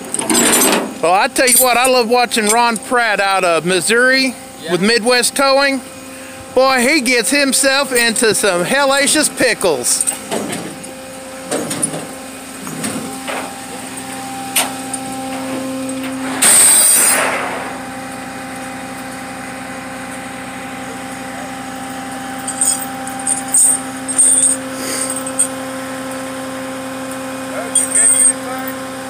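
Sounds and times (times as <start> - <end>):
truck engine humming: 0.0 - 29.0
metallic clinks of hook and chain: 22.4 - 25.5, 27.7 - 28.4.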